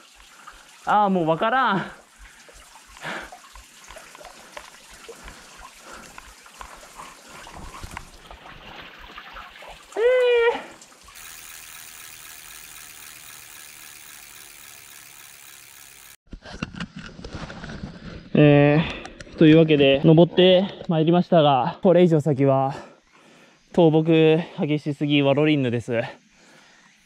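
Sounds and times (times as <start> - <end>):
stream splashing over rocks: 0.0 - 11.3
person exclaiming: 10.0 - 10.8.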